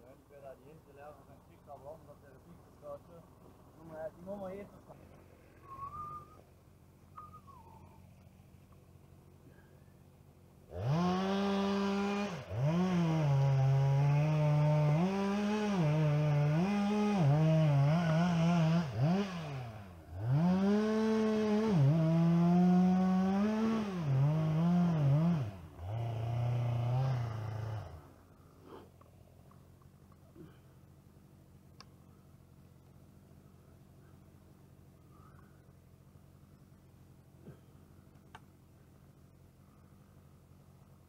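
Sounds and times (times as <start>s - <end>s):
chainsaw cutting wood: 10.6s - 29.1s.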